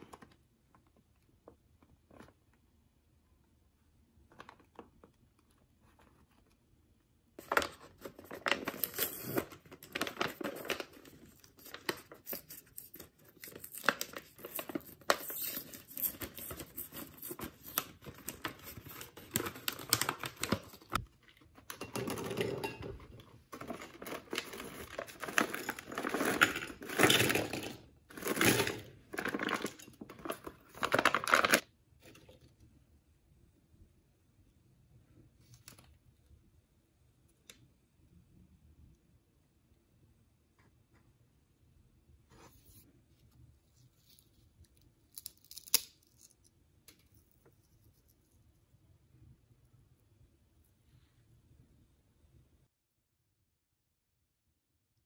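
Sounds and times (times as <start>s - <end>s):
plastic snack pouch crinkling: 7.4s - 21.5s, 23.5s - 31.6s.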